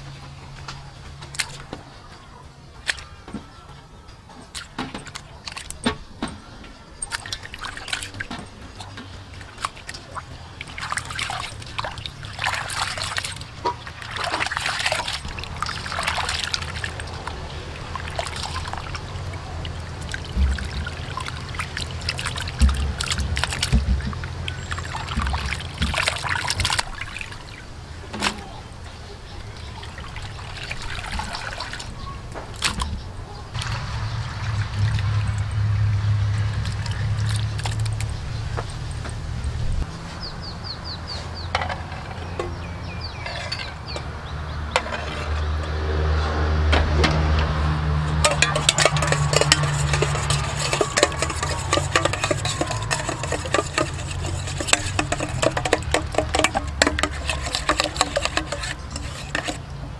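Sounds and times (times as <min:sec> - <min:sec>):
water splashing in metal bowl: 0:04.4 - 0:06.0, 0:07.0 - 0:28.4, 0:29.6 - 0:33.0, 0:33.6 - 0:39.2, 0:47.0 - 0:59.9.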